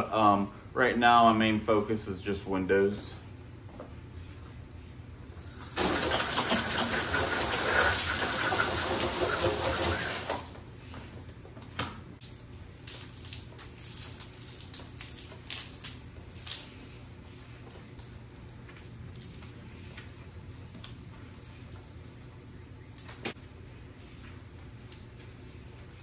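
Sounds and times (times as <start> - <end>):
garden hose spraying water: 5.4 - 10.6, 12.2 - 23.1.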